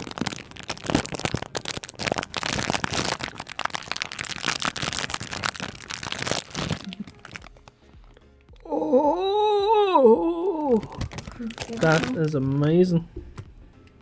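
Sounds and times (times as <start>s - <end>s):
plastic bag crinkling: 0.0s - 7.7s, 10.7s - 12.7s.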